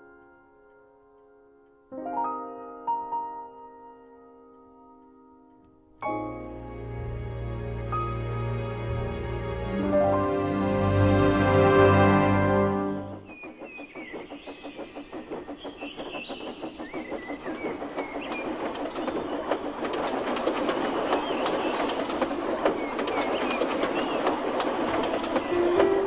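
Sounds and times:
birds chirping: 0:13.0 - 0:26.0
wagons clattering: 0:13.0 - 0:26.0.

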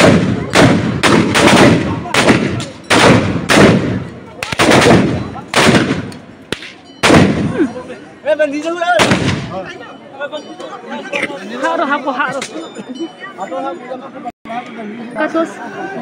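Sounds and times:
volley of gunfire: 0:00.0 - 0:07.5, 0:09.0 - 0:09.5.

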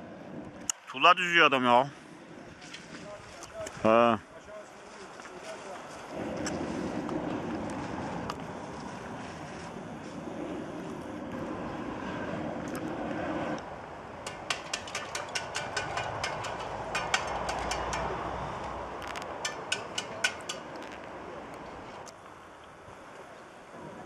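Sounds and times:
torch burning: 0:06.1 - 0:15.8
sharp irregular clicks: 0:14.2 - 0:18.2, 0:19.0 - 0:22.2.

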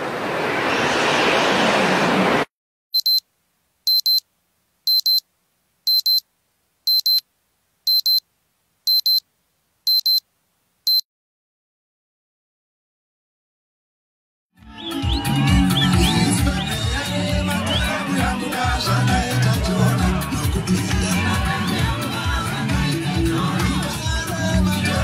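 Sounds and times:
rising whoosh: 0:00.0 - 0:02.5
electronic double beeps: 0:03.0 - 0:03.2, 0:03.9 - 0:04.2, 0:04.9 - 0:05.2, 0:05.9 - 0:06.2, 0:06.9 - 0:07.2, 0:07.9 - 0:08.2, 0:08.9 - 0:09.2, 0:09.9 - 0:10.2.

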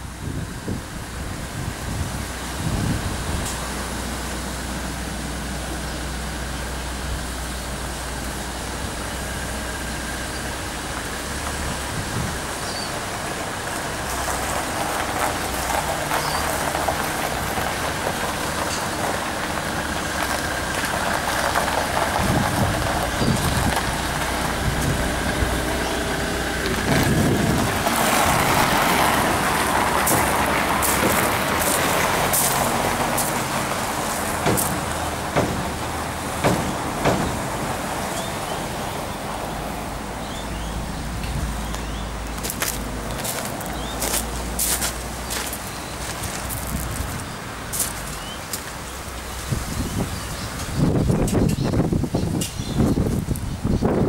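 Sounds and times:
diesel engine idling: 0:00.9 - 0:51.2
sharp knocks: 0:34.4 - 0:37.7.

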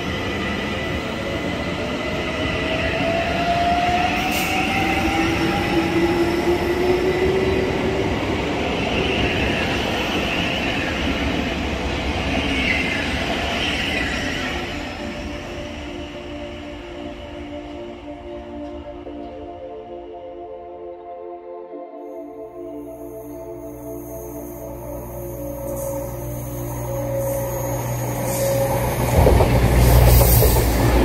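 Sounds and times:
rising electric motor whines: 0:23.1 - 0:31.0
train wheels rumbling on rail: 0:24.1 - 0:31.0.

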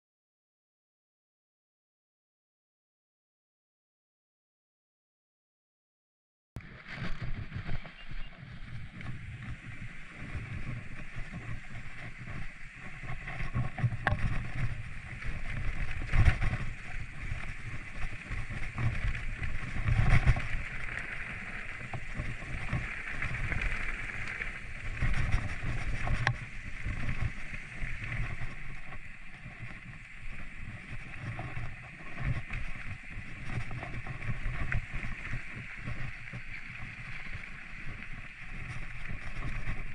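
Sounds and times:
bike tyres and frame rumbling: 0:06.6 - 0:39.9
wind buffeting microphone: 0:06.6 - 0:39.9
bike knocking and rattling: 0:13.0 - 0:20.6.

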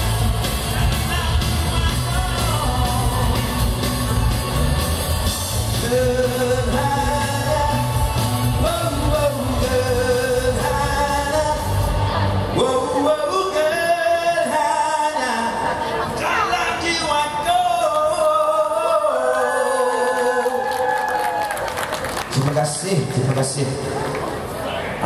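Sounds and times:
man singing: 0:00.0 - 0:04.2, 0:05.5 - 0:20.6
live band playing: 0:00.0 - 0:12.8.

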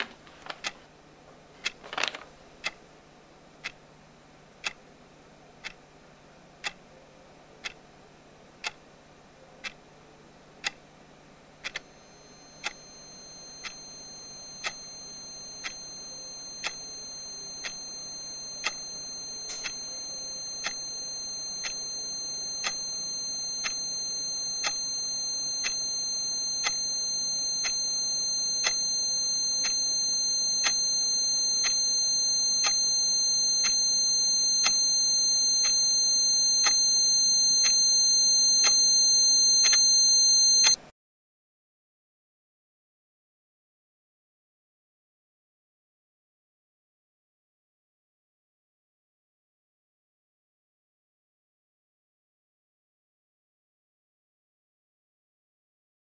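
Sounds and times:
high-pitched ringing tone: 0:11.8 - 0:40.8.

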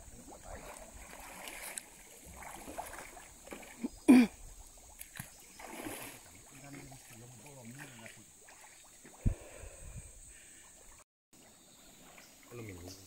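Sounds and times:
water sloshing and splashing: 0:00.0 - 0:09.6, 0:10.3 - 0:13.0.

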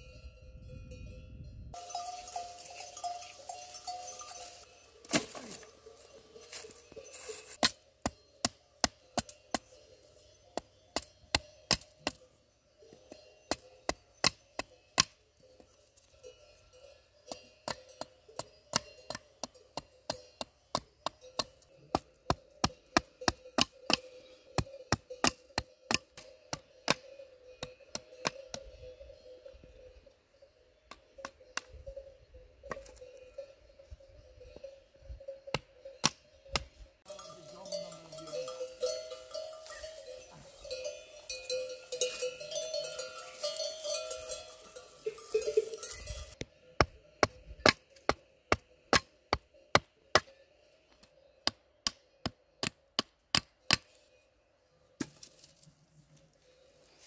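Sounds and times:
hatchet chopping wood: 0:07.6 - 0:09.7, 0:10.6 - 0:12.2, 0:13.5 - 0:15.2, 0:17.6 - 0:27.0, 0:35.5 - 0:36.7, 0:46.4 - 0:50.3, 0:51.4 - 0:54.0.

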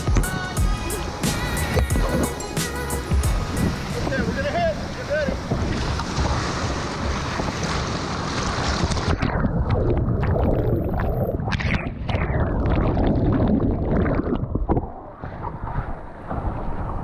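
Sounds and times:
rushing river whitewater: 0:00.0 - 0:09.1
sharp water splashes: 0:00.0 - 0:15.8
wind buffeting microphone: 0:03.2 - 0:17.0.

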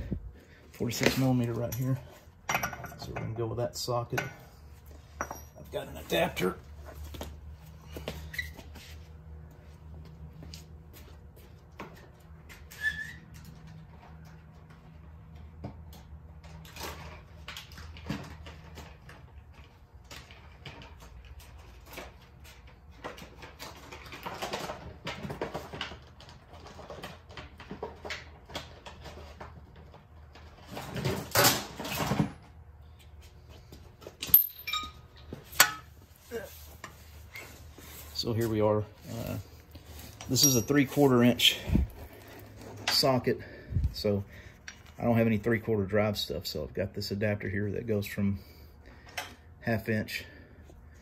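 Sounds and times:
metal tools clinking: 0:01.0 - 0:03.4, 0:34.2 - 0:35.9, 0:40.1 - 0:41.6.

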